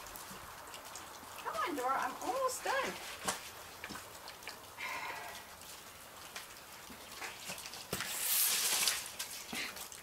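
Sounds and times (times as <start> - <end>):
broom sweeping concrete: 8.0 - 9.2.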